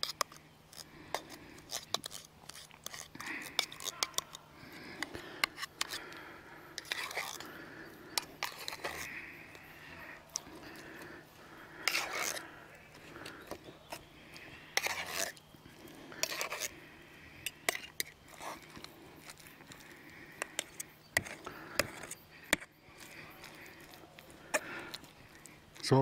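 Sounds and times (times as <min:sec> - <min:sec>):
metal spoon stirring in bowl: 0:08.1 - 0:09.1, 0:11.8 - 0:12.4, 0:14.8 - 0:15.4, 0:16.2 - 0:16.7, 0:17.5 - 0:19.8.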